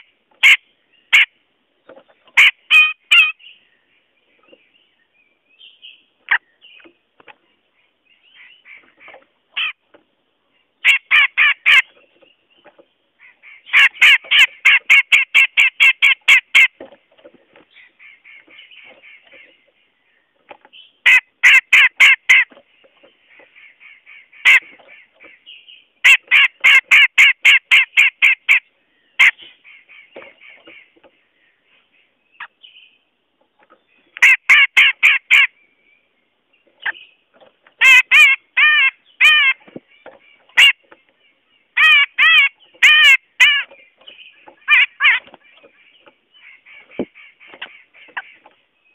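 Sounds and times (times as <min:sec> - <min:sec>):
soft bird chattering: 0:02.1 - 0:03.6, 0:37.8 - 0:48.6.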